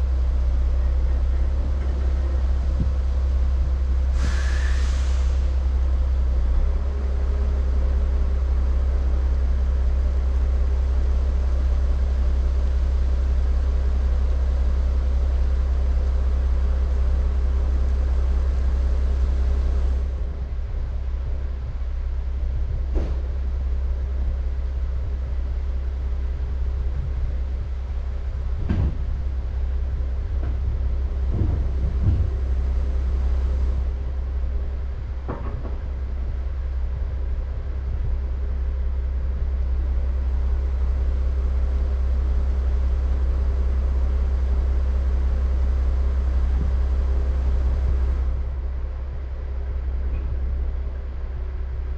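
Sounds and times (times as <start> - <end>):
diesel engine idling: 0.0 - 51.9
knocks and clanks: 22.9 - 23.3, 28.6 - 29.1, 31.3 - 32.5, 35.2 - 35.9.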